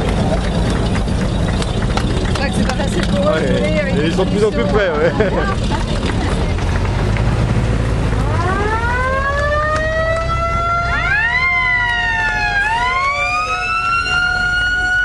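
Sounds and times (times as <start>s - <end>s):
jeep engines running: 0.0s - 15.0s
mechanical siren wailing: 8.2s - 15.0s.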